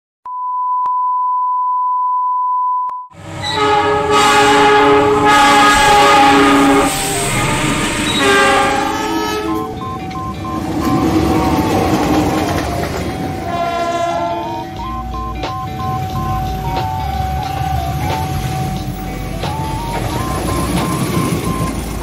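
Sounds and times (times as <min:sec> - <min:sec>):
locomotive air horns: 0:03.2 - 0:09.9, 0:13.2 - 0:15.1
passing train rumble: 0:03.2 - 0:22.0
test tone: 0:06.8 - 0:22.0.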